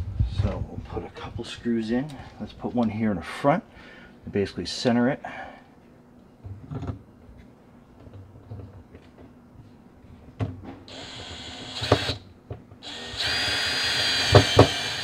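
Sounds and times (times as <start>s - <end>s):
cordless drill motor whine: 10.9s - 12.2s, 12.8s - 15.0s.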